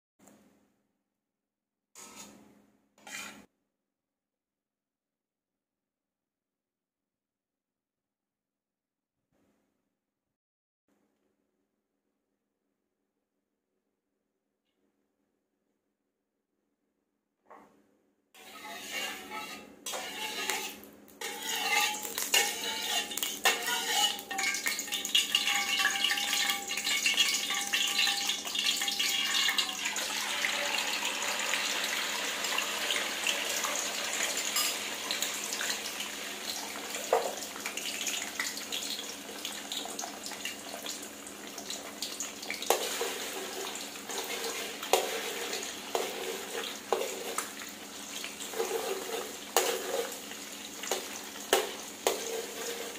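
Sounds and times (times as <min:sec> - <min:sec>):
metal spatula scraping wok: 0:02.0 - 0:02.4, 0:03.0 - 0:03.5, 0:18.4 - 0:35.8, 0:42.7 - 0:52.9
eggs sizzling in hot oil: 0:18.4 - 0:52.9.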